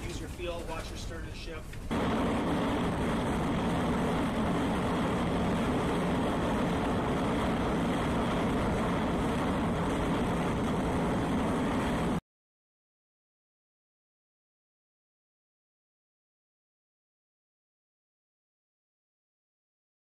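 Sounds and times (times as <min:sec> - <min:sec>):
ship machinery rumble: 0:00.0 - 0:12.2
wind noise: 0:01.9 - 0:12.2.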